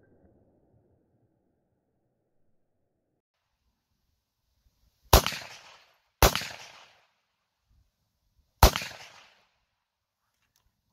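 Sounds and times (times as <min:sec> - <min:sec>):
rifle shots: 0:05.1 - 0:07.1, 0:08.6 - 0:09.5.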